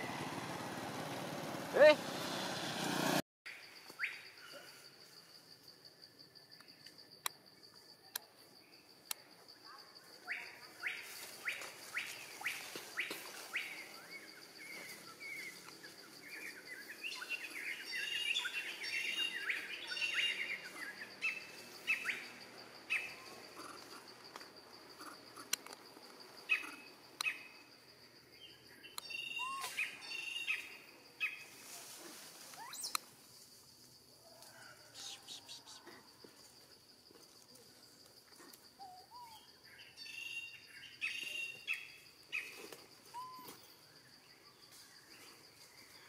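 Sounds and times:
birds chirping and calling: 0:16.3 - 0:24.0, 0:26.5 - 0:27.4.

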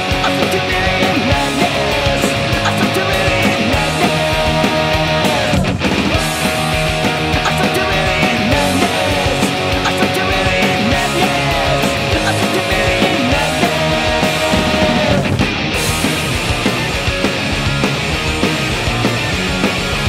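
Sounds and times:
person singing: 0:00.0 - 0:05.6, 0:07.1 - 0:15.3
drum kit: 0:00.0 - 0:20.0
electric guitars: 0:00.0 - 0:20.0.

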